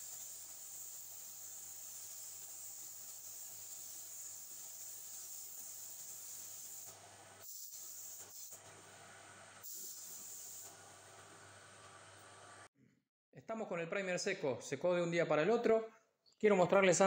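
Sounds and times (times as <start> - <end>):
spray gun air hissing: 0.0 - 8.6, 9.6 - 10.8.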